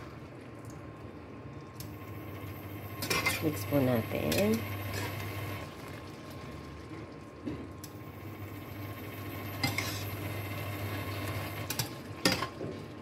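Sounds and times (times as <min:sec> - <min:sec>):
metal spoon scraping frying pan: 0:09.6 - 0:10.2.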